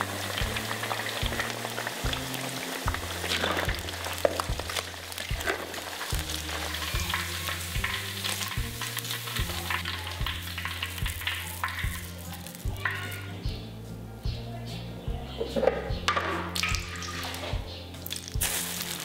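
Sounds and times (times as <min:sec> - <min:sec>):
fish deep-frying in hot oil: 0:00.0 - 0:13.2, 0:16.6 - 0:17.4, 0:18.0 - 0:19.0.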